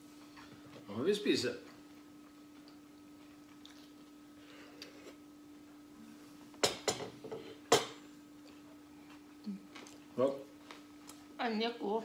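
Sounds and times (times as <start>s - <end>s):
faint steady hum: 0.0s - 12.0s
plates knocking: 6.6s - 8.0s.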